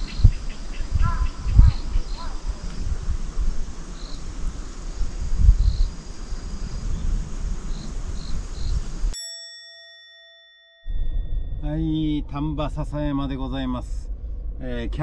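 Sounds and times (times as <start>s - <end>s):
faint insect chirps: 0.0s - 9.2s
low wind rumble: 0.0s - 9.2s, 10.9s - 15.0s
bell-like chime: 9.1s - 11.7s.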